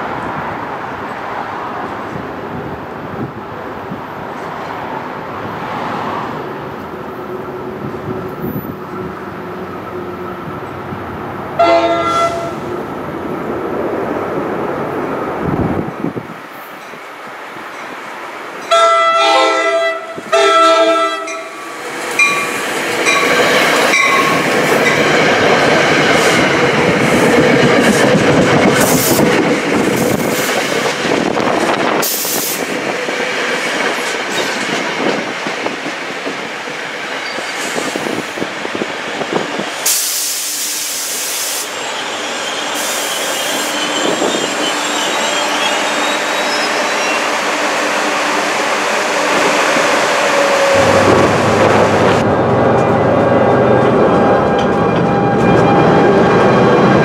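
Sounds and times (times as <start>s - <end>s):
train horn blasts: 11.6s - 12.7s, 18.7s - 21.6s, 50.8s - 56.2s
train wheels clickety-clack: 21.3s - 41.7s
locomotive hiss: 39.8s - 45.8s
diesel engine drone: 50.8s - 54.4s.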